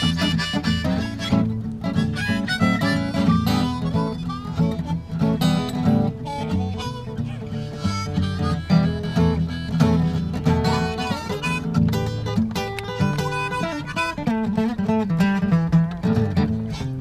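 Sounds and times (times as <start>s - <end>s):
acoustic guitar strummed: 0.0s - 17.0s
harmonica melody: 0.0s - 17.0s.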